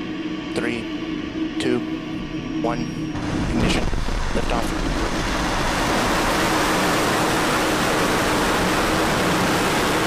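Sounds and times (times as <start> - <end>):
rocket exhaust roar: 3.2 - 10.0.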